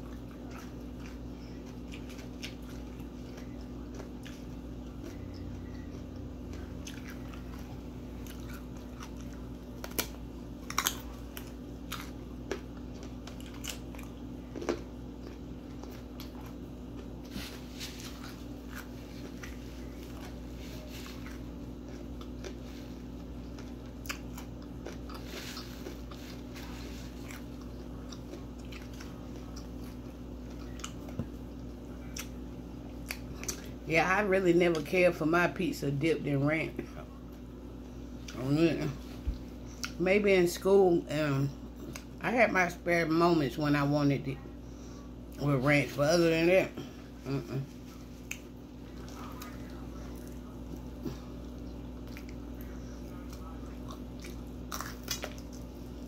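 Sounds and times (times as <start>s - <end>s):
crunchy crackles: 0.0s - 32.4s, 47.2s - 56.0s
chewing and biting: 0.0s - 33.8s, 47.6s - 56.0s.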